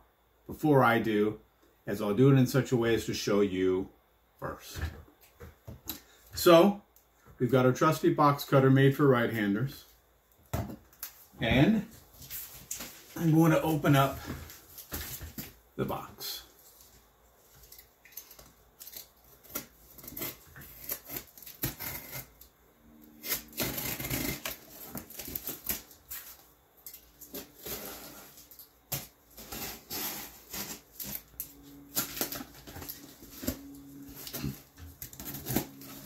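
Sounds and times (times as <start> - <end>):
box cutter slicing packing tape: 18.9 - 22.4, 23.1 - 26.0, 29.0 - 32.6, 34.2 - 36.0
cardboard rustling: 23.4 - 36.0.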